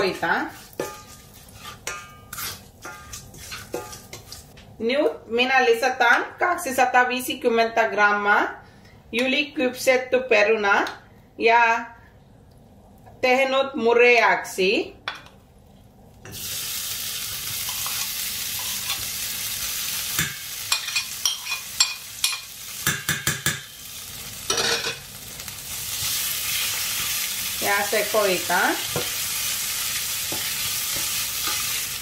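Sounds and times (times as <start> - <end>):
potatoes sizzling in hot oil: 0.0 - 1.8, 16.3 - 32.0
spoon scraping a pan: 0.0 - 4.6, 17.6 - 19.1, 20.7 - 22.5, 30.2 - 31.9.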